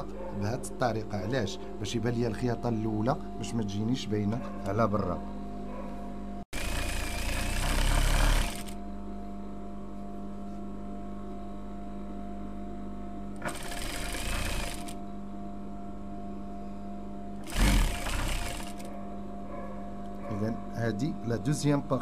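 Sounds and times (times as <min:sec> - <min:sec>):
motor hum: 0:05.3 - 0:20.8
sewing machine stitching: 0:06.6 - 0:08.8, 0:13.4 - 0:15.0, 0:17.4 - 0:18.9.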